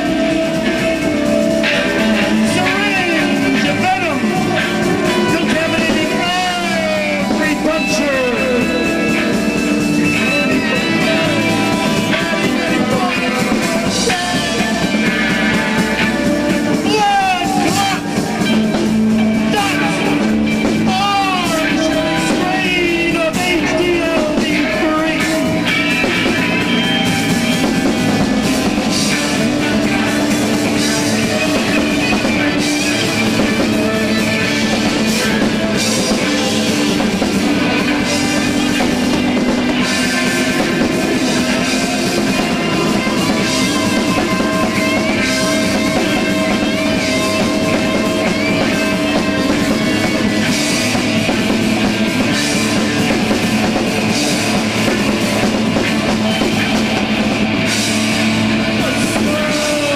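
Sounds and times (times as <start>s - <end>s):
man singing: 0.0s - 18.6s, 19.4s - 26.6s, 58.7s - 59.9s
drum kit: 0.0s - 59.9s
electric guitar: 0.0s - 59.9s.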